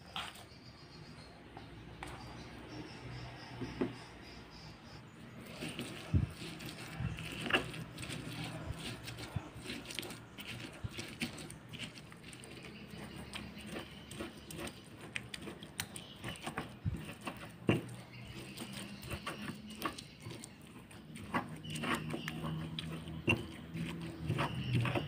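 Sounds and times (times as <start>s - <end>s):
wet squelching and scraping: 4.9s - 25.0s
pestle knocking against stone: 13.6s - 20.1s.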